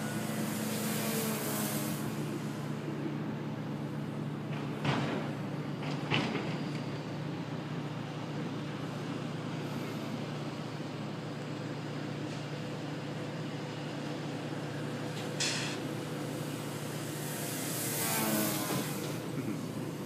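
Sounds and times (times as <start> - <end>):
model plane motor buzzing: 0.0 - 2.8, 15.7 - 20.0.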